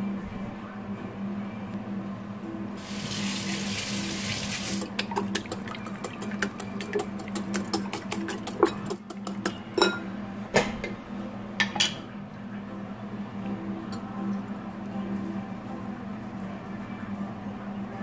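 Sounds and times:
whisk clicking against glass bowl: 0:05.0 - 0:09.6.

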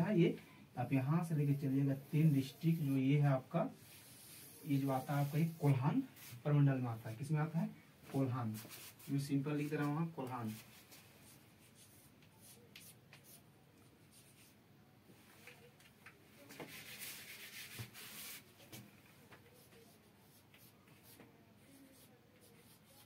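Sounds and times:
chalk scratching on blackboard: 0:03.8 - 0:06.4, 0:09.8 - 0:13.4, 0:16.6 - 0:18.5, 0:19.6 - 0:23.0.

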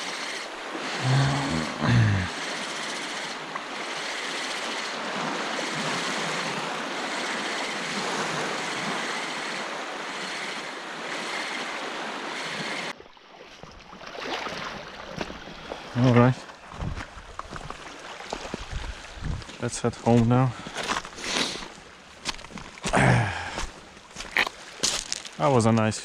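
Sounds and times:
lapping sea water: 0:00.0 - 0:21.9, 0:22.8 - 0:25.8
wind on microphone: 0:16.7 - 0:17.7, 0:18.5 - 0:19.6.

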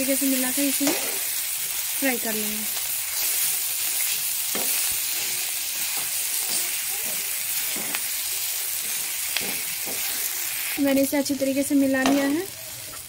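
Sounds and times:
food sizzling in oil: 0:00.0 - 0:13.0
spatula scraping a pan: 0:03.0 - 0:10.8.

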